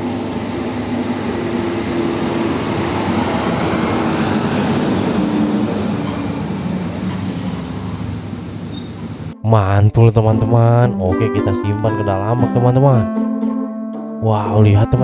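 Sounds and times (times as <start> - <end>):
truck diesel engine rumbling: 0.0 - 9.4.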